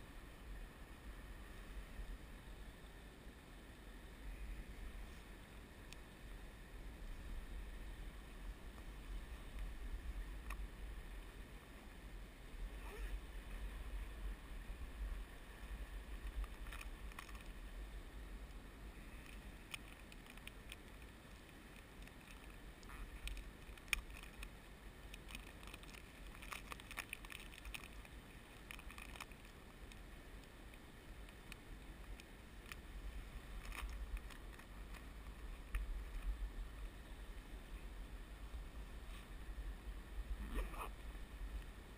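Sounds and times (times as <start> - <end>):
river water flowing: 0.0 - 41.9
faint clicks: 10.4 - 11.3, 18.4 - 37.0.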